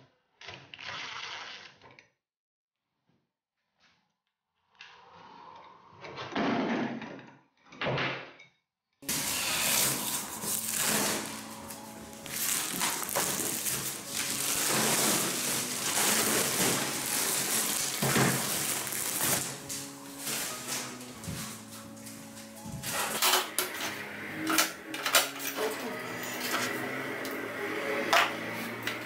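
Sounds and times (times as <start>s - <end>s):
cordless drill driving screws: 9.1s - 11.4s
handling knocks and scrapes: 9.1s - 23.2s.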